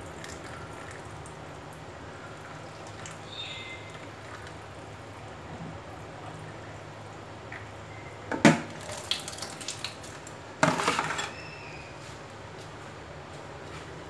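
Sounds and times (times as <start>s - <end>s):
plastic colander clattering in sink: 10.6s - 11.3s.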